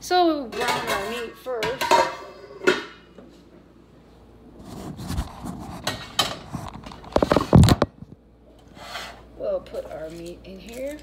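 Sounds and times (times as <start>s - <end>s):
knocks rubs and scrapes: 4.6s - 7.8s.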